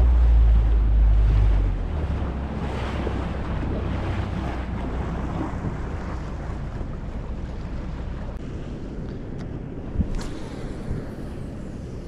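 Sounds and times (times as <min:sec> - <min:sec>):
boat motor hum: 0:00.0 - 0:09.3
water washing past hull: 0:00.0 - 0:12.0
wind buffeting microphone: 0:00.0 - 0:12.0.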